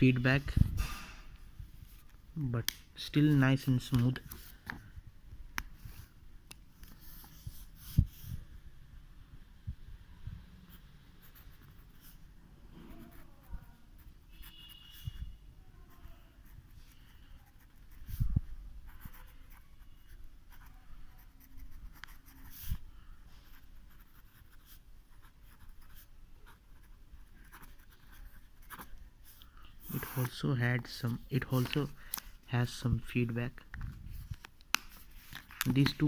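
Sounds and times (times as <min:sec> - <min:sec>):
pen scratching on paper: 0:10.7 - 0:15.2, 0:15.8 - 0:22.8, 0:23.4 - 0:30.4.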